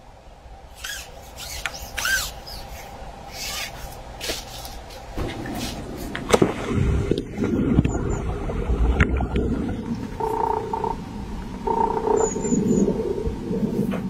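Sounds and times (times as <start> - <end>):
dry reeds rustling and scraping: 0.8 - 6.2
low rustling rumble: 4.9 - 14.0.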